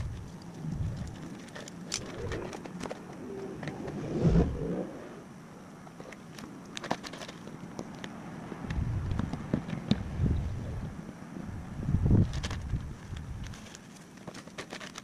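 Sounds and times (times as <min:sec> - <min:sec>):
dove cooing: 0:01.0 - 0:05.2.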